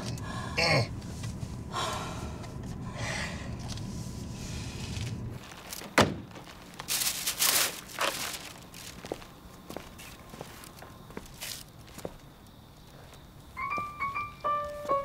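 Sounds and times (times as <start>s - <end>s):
heavy breathing: 0.0s - 5.3s
paper bag rustling: 5.0s - 10.7s.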